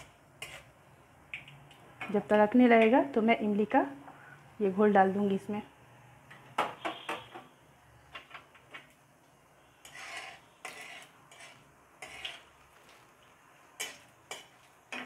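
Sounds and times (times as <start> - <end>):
metal spatula scraping metal pan: 0.0 - 0.8, 9.7 - 12.5, 13.8 - 15.0.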